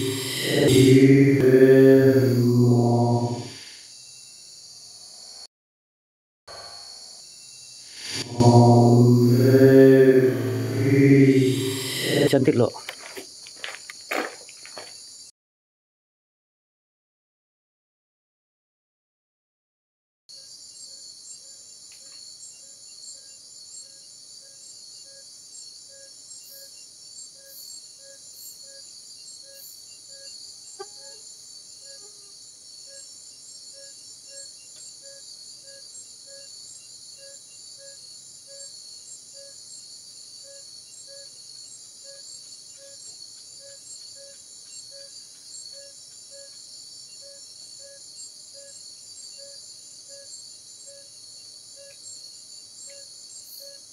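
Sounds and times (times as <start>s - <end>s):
low repeating insect note: 0.0s - 3.6s, 8.0s - 12.7s.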